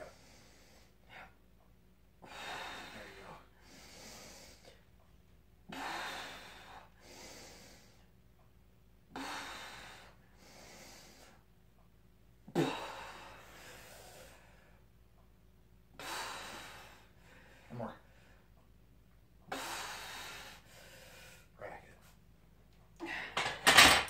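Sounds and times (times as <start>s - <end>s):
woman breathing hard: 0.0s - 1.4s, 2.2s - 4.9s, 5.7s - 8.1s, 9.1s - 11.4s, 12.5s - 15.0s, 15.9s - 18.7s, 19.5s - 21.6s, 23.0s - 24.0s.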